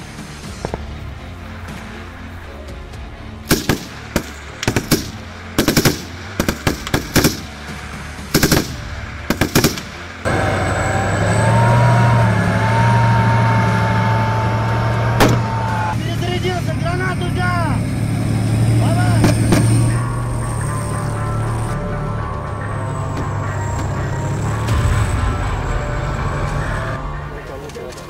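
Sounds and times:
tank engine running: 0.0 - 28.0
automatic rifle fire bursts: 3.5 - 7.5, 8.3 - 9.9.

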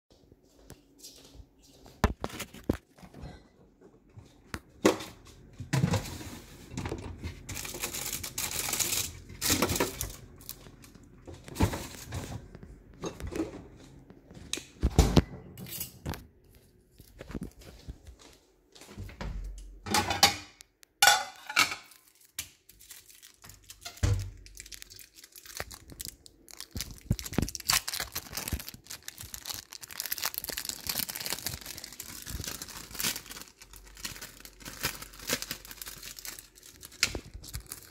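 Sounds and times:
rustling and crinkling: 0.6 - 3.2, 3.9 - 14.9, 16.1 - 19.4, 21.8 - 37.9.

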